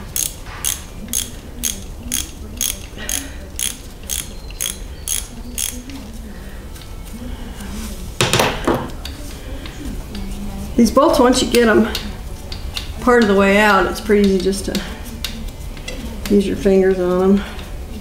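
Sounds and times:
ratchet wrench clicking: 0:00.0 - 0:05.9.

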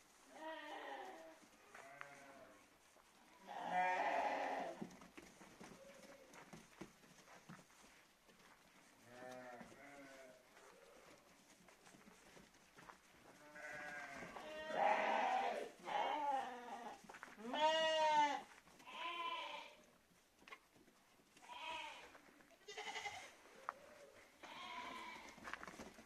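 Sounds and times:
sheep bleating: 0:00.3 - 0:02.6, 0:03.4 - 0:04.8, 0:09.0 - 0:11.0, 0:13.4 - 0:19.8, 0:21.4 - 0:23.4, 0:24.4 - 0:25.4.

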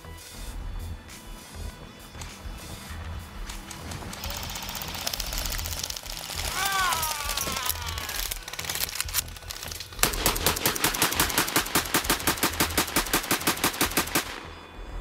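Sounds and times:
automatic gunfire: 0:10.0 - 0:14.5.

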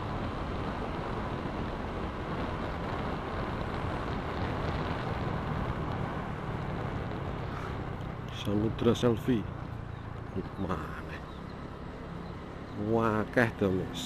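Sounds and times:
wind noise: 0:00.0 - 0:08.2
road noise: 0:00.0 - 0:14.0
scooter engine cruising: 0:00.0 - 0:14.0.

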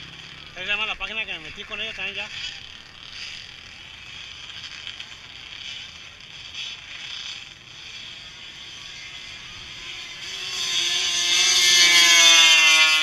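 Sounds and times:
atv engines at full throttle: 0:00.0 - 0:13.0.

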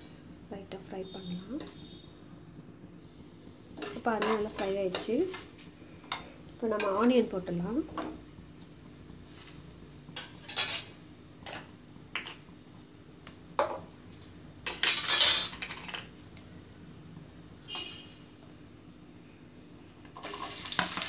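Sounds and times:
metal utensils clinking on dishes: 0:10.2 - 0:10.9, 0:14.7 - 0:16.1.

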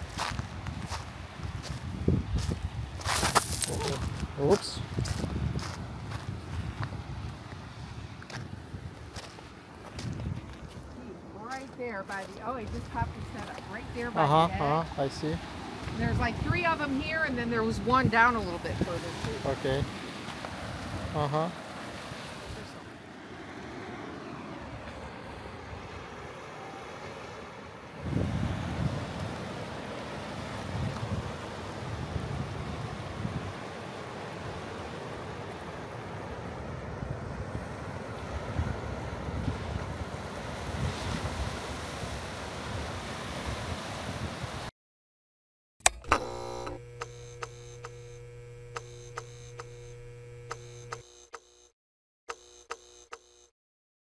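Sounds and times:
wind rumbling on microphone: 0:00.0 - 0:14.1, 0:15.4 - 0:21.2, 0:27.9 - 0:33.8, 0:36.0 - 0:44.7
ocean surf: 0:11.2 - 0:44.7
sharp electronic click: 0:45.8 - 0:51.7
electronic hum with held tones: 0:45.8 - 0:53.5
electronic ticks: 0:45.9 - 0:51.7, 0:52.3 - 0:53.5.

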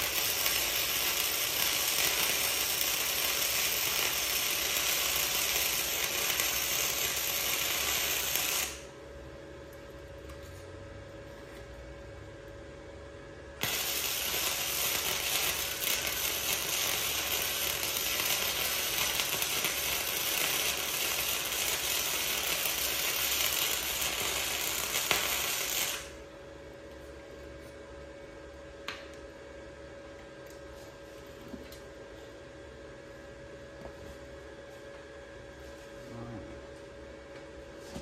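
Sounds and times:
welding arc crackling: 0:00.0 - 0:08.9, 0:13.6 - 0:26.2.

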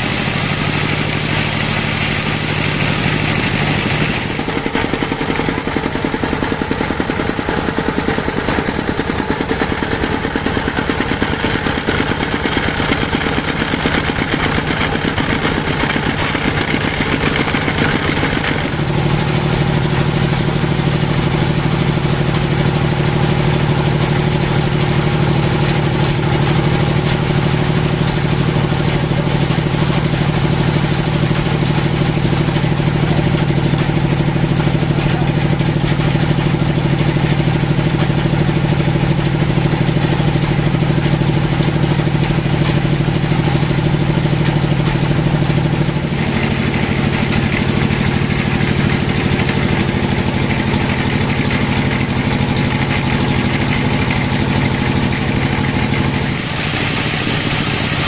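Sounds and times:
band saw machine drone: 0:56.1 - 0:58.0.

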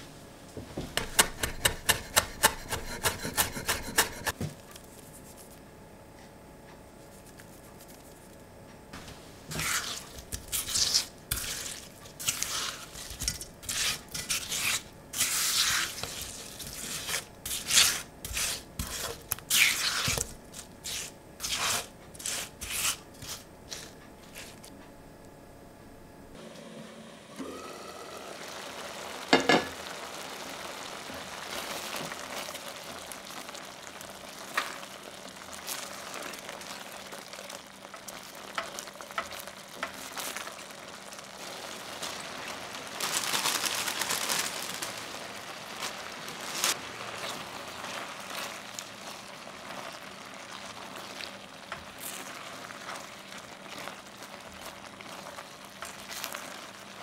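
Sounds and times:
stew simmering and bubbling: 0:00.0 - 0:04.4, 0:09.0 - 0:24.9, 0:26.3 - 0:57.0
stirring stew: 0:00.9 - 0:04.4, 0:09.5 - 0:24.7, 0:46.6 - 0:57.0
utensil clicking against pan: 0:01.0 - 0:04.4.

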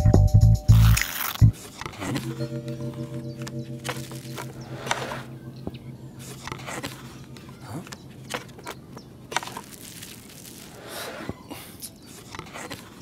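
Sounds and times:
foam packing beads rustling: 0:01.0 - 0:01.4, 0:03.9 - 0:04.6, 0:09.2 - 0:11.2.

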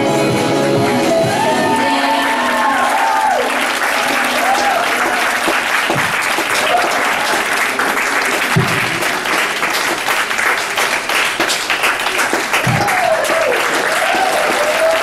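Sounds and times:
audience applauding: 0:01.0 - 0:15.0
audience cheering: 0:01.0 - 0:15.0.

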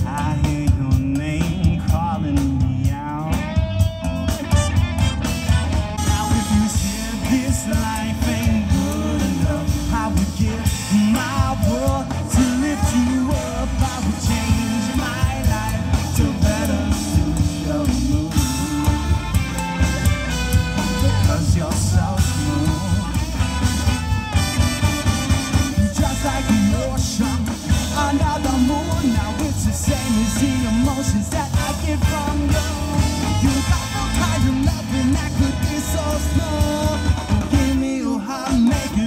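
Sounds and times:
live rock and roll band: 0:00.0 - 0:39.0
person singing lead: 0:06.0 - 0:23.4.

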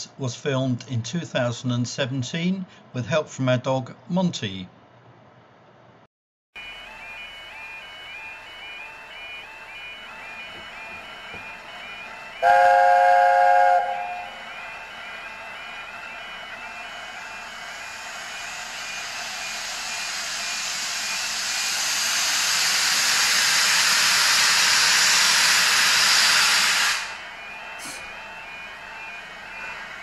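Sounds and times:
steam locomotive hissing steam: 0:06.6 - 0:30.0
two-tone crossing alarm beeping: 0:06.6 - 0:30.0.

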